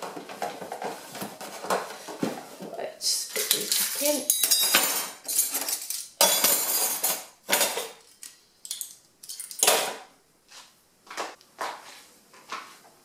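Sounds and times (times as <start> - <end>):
metal spoons clattering: 3.3 - 10.0.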